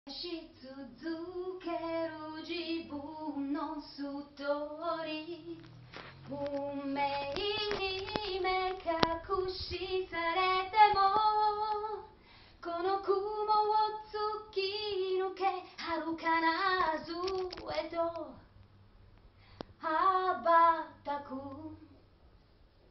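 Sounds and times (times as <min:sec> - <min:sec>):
sharp clicks: 0:16.8 - 0:18.7.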